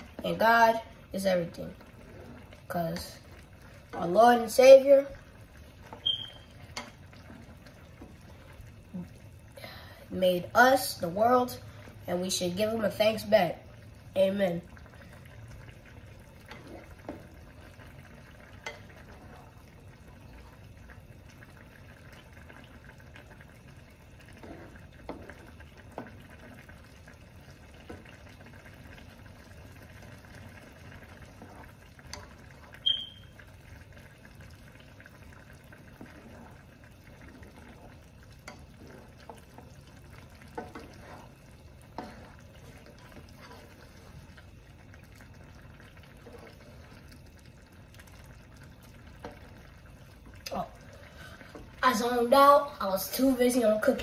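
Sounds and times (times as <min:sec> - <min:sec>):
water bubbling in a pan: 0:00.0 - 0:54.0
spoon stirring against pan: 0:05.0 - 0:08.6, 0:16.2 - 0:20.5, 0:22.4 - 0:26.8, 0:27.6 - 0:51.8.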